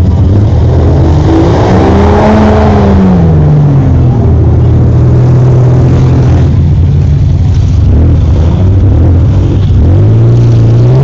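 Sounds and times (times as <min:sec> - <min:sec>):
truck engine running: 0:00.0 - 0:11.0.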